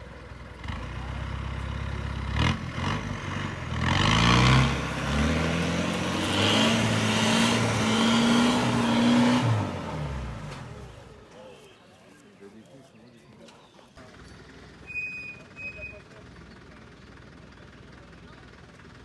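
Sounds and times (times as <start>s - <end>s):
engine revving under load: 0.0s - 11.2s.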